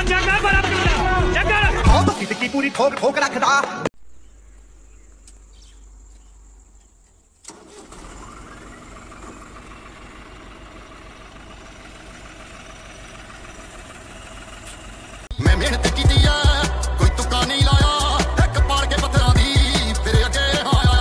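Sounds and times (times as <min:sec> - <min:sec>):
diesel tractor engine running: 0:07.4 - 0:21.0.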